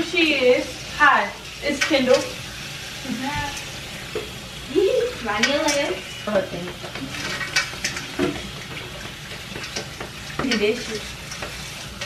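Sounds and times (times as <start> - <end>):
tap water running into metal sink: 0.0 - 12.0
knocks against sink: 8.2 - 10.6.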